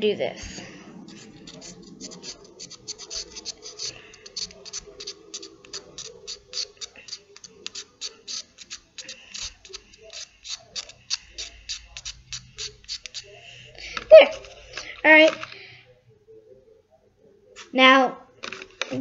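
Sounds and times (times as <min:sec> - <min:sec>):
chalk pastel being scraped: 0:00.4 - 0:15.0.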